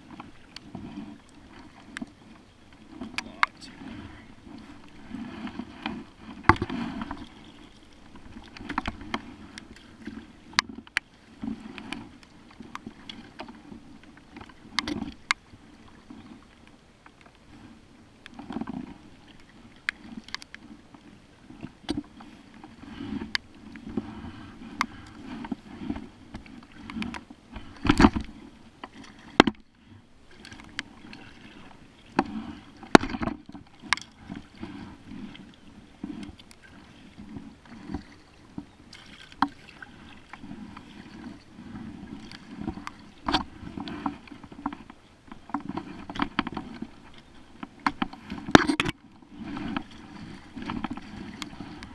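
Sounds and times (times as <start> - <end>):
paddle swishing through water: 0.0 - 51.9.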